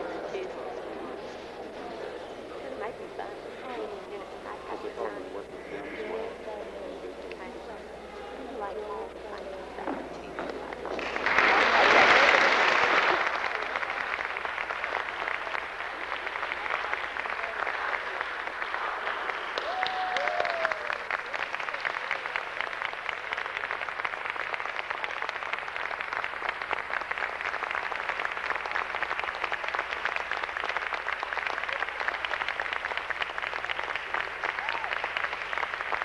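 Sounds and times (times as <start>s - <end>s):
audience applauding: 0.0s - 1.0s, 8.2s - 36.0s.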